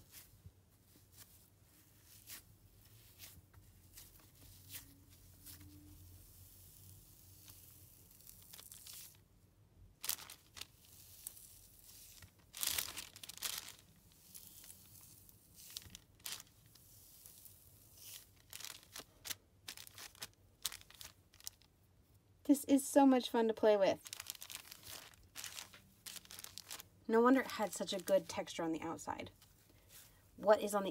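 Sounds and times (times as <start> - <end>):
foam squishy tearing crackle: 6.2 - 9.2, 10.0 - 21.7, 23.9 - 28.5.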